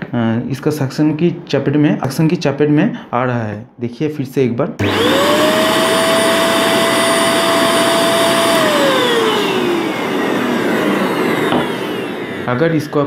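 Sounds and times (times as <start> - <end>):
handheld vacuum cleaner running: 4.8 - 13.0
vacuum motor spinning down: 4.8 - 13.0.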